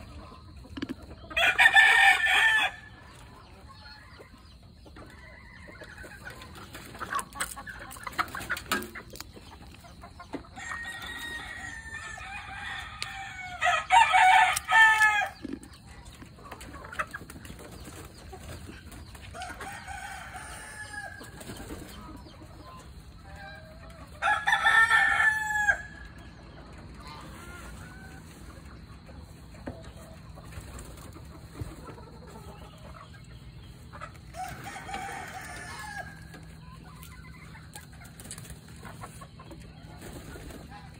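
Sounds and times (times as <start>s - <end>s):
chickens clucking: 0.0s - 40.9s
rooster crowing: 1.4s - 2.9s, 10.6s - 15.4s, 19.4s - 21.2s, 24.2s - 26.0s, 34.3s - 36.3s.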